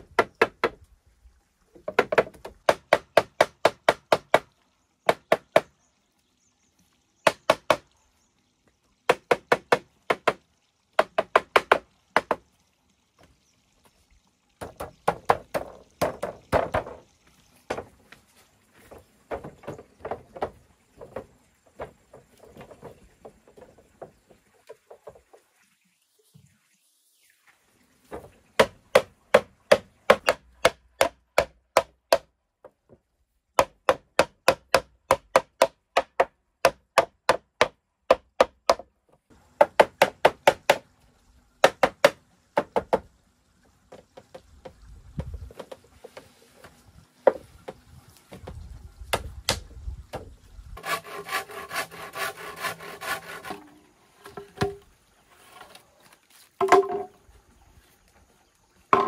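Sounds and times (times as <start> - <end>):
tool knocking on dry bamboo: 0.0 - 0.8, 1.8 - 4.5, 5.1 - 5.7, 7.2 - 7.9, 9.1 - 10.4, 11.0 - 12.4, 14.6 - 17.0, 17.6 - 25.2, 28.1 - 33.0, 33.6 - 38.9, 39.6 - 40.8, 41.6 - 43.1, 43.9 - 54.9, 56.6 - 57.2.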